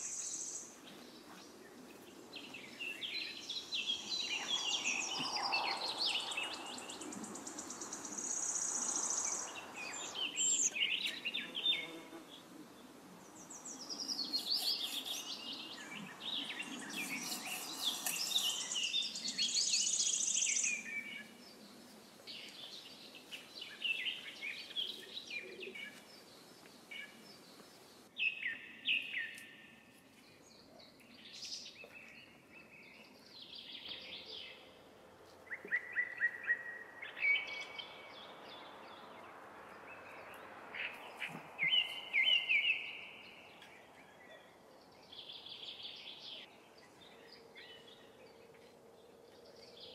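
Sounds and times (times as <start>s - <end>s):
songbirds chirping: 0.0s - 49.9s.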